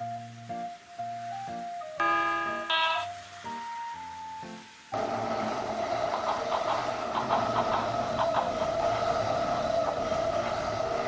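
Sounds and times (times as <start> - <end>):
toy train motor whine: 5.0 - 11.0
wheels clicking over track joints: 5.0 - 11.0.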